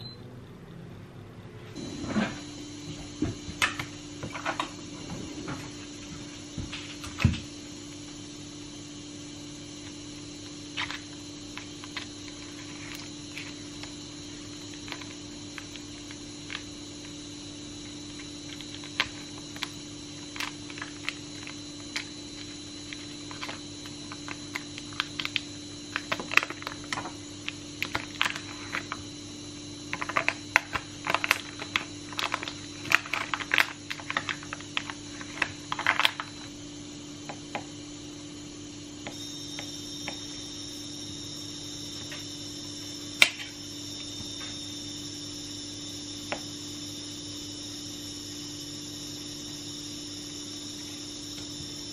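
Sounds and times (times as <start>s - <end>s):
steady hum: 0.0s - 51.9s
plastic package crackling: 18.2s - 29.0s, 29.9s - 36.4s.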